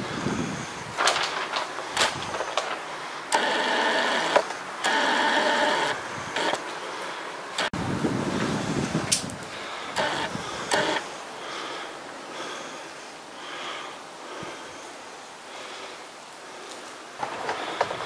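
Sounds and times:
handling and movement noise: 0.0 - 11.2, 16.6 - 18.0
soft breathing close to microphone: 8.3 - 18.0.

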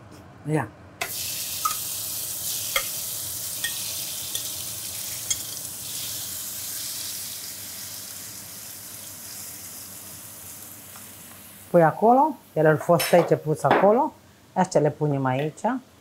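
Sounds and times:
food sizzling in a pan: 1.0 - 12.8.

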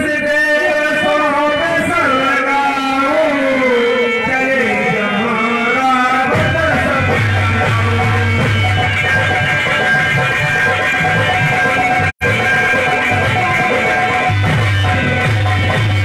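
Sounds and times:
man singing through loudspeakers: 0.0 - 9.6.

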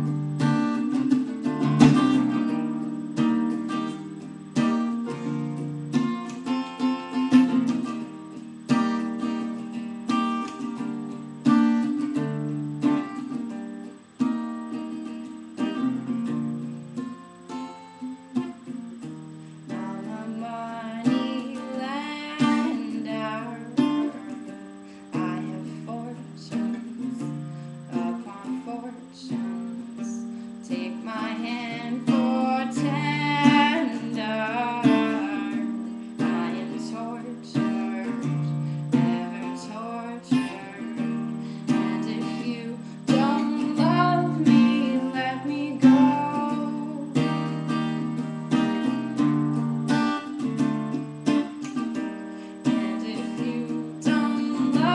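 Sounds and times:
acoustic guitar strumming: 0.0 - 54.9
woman singing: 19.6 - 49.2, 51.2 - 54.9.

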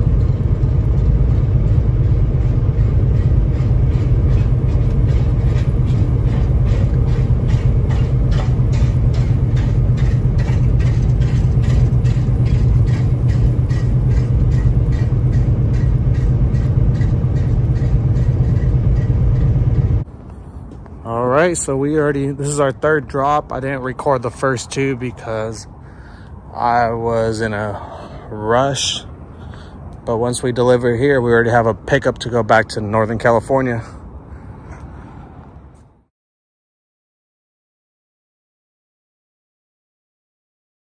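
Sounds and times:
regular ticking: 0.0 - 20.0
truck engine and road rumble: 0.0 - 36.1.

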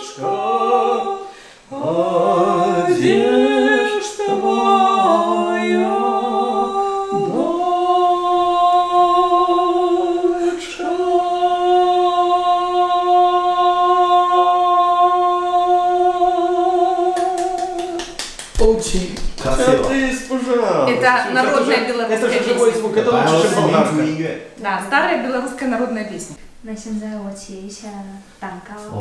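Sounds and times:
man singing a long high note: 4.2 - 11.0
hand clapping: 17.2 - 20.2.

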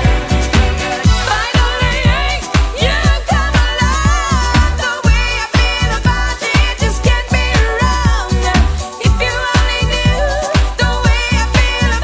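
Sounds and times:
dance-pop music: 0.0 - 12.0
kick drum beat: 0.0 - 12.0.

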